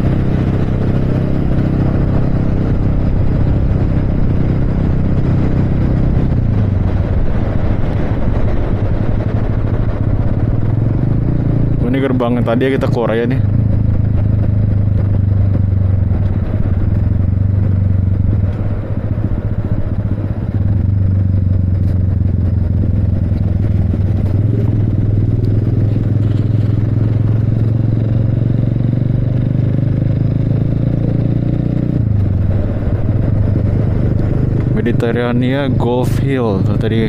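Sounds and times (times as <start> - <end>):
motorcycle engine running: 0.0 - 37.0.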